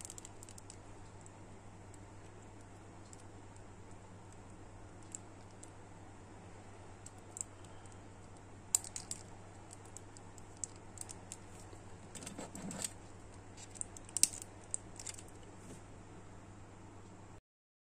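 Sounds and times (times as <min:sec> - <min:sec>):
faint low hum: 0:00.0 - 0:17.4.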